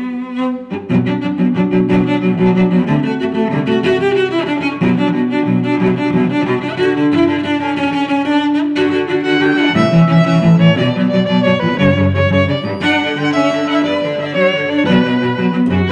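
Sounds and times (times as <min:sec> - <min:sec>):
music with long held notes: 0:00.0 - 0:15.9.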